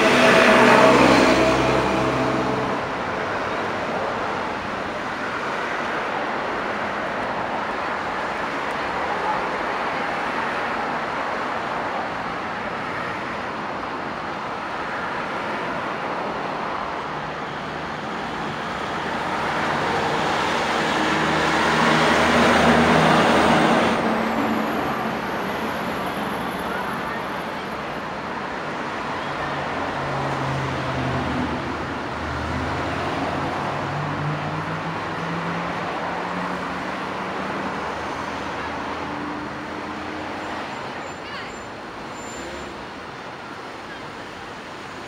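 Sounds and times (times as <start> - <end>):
cars passing on street: 0.0 - 45.0.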